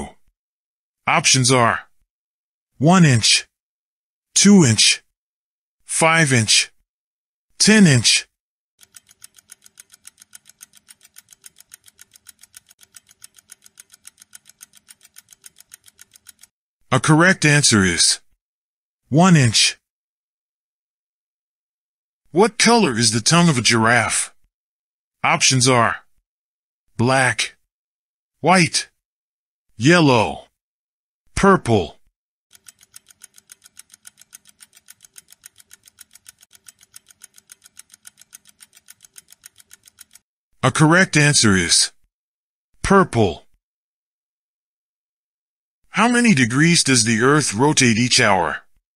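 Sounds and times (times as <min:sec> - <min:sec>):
fast clock-like ticking: 0:08.8 - 0:16.5, 0:32.5 - 0:40.2.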